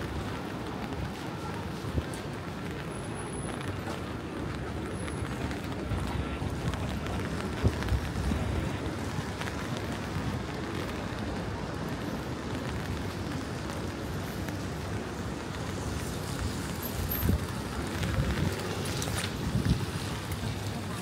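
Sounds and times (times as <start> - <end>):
rain on wet street: 0.0 - 21.0
wind buffeting microphone: 5.3 - 11.8, 14.8 - 21.0.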